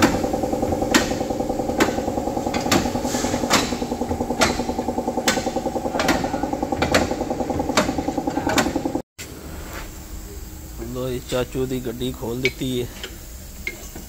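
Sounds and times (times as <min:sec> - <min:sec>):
machine running with fast rattle: 0:00.0 - 0:09.0.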